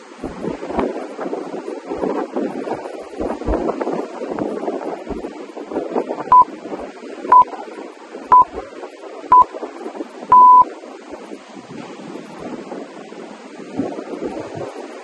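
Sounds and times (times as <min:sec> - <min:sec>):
surf: 0:00.0 - 0:15.0
wind on microphone: 0:00.0 - 0:15.0
electronic timer beeps: 0:08.3 - 0:08.5, 0:10.3 - 0:10.7.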